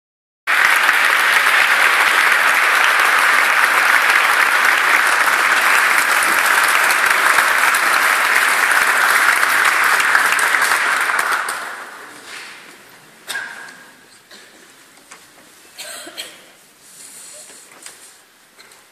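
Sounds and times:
audience applauding: 0.5 - 12.4.

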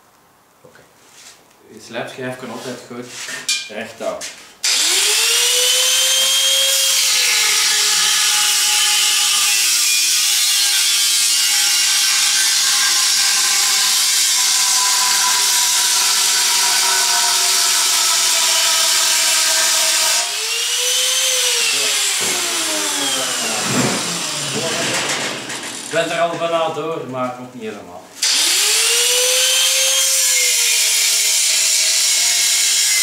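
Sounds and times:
angle grinder cutting steel: 4.6 - 26.1, 28.2 - 33.0.

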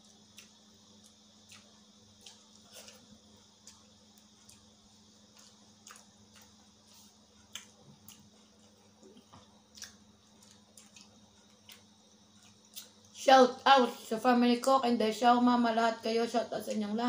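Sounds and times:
people chewing food: 0.0 - 13.2
low steady hum: 0.0 - 17.0.

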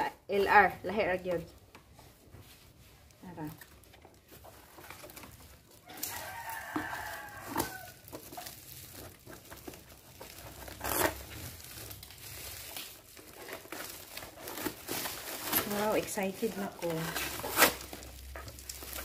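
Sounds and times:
plastic wrapping crinkling: 0.0 - 19.0
rooster crowing: 5.8 - 8.0.

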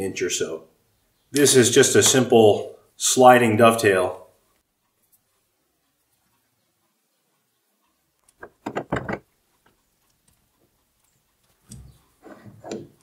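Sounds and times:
metal clicks and knocks: 8.2 - 10.4, 11.5 - 13.0.

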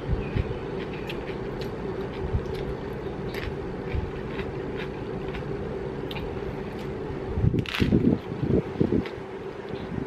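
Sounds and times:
electric fan humming: 0.0 - 10.0
person chewing crunchily: 0.1 - 7.0.

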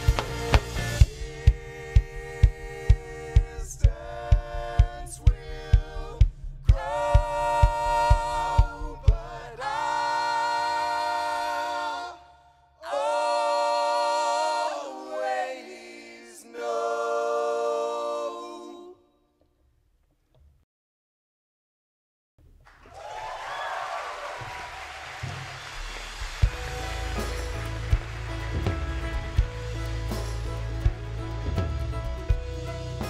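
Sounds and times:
steady drum beat: 0.0 - 9.9, 24.4 - 33.0
multi-part vocal harmony singing: 0.0 - 19.2.

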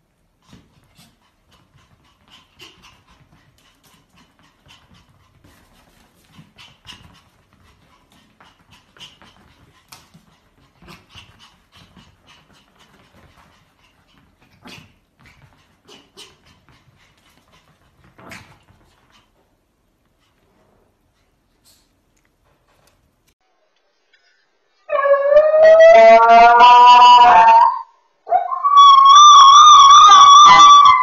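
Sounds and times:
dogs panting: 0.3 - 22.0.

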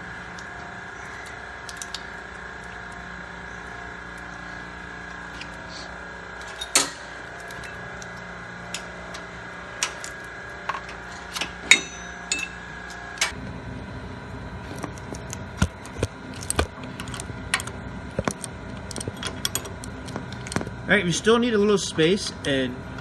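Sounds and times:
steady hum: 0.0 - 23.0
ringing metal knock: 11.7 - 12.6.

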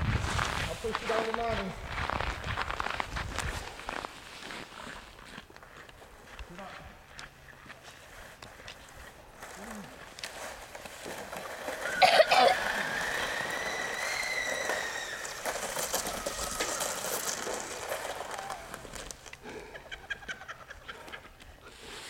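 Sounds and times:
child squealing: 11.9 - 17.4.

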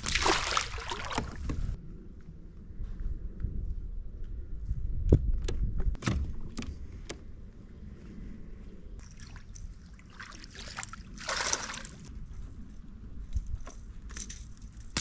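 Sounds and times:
fish splashing at the surface: 0.0 - 1.3, 9.0 - 12.0.

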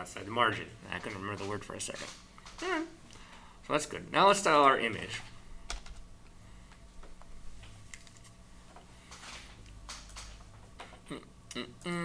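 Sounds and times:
low steady hum: 0.0 - 12.0
computer keyboard and mouse clicks: 5.7 - 6.0, 9.6 - 11.0.

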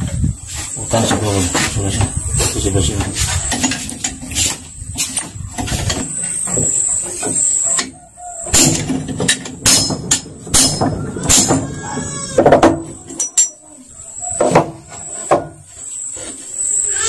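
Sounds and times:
metal tools clicking and knocking: 8.5 - 11.8, 12.4 - 13.6.

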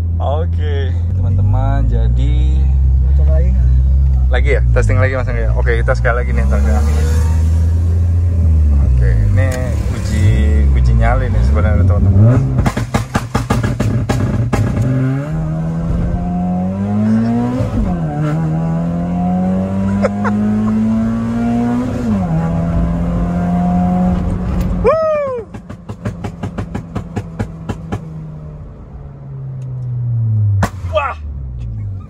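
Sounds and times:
car engine accelerating: 0.0 - 32.0
exhaust pops and crackles: 12.4 - 14.9, 25.4 - 28.1.

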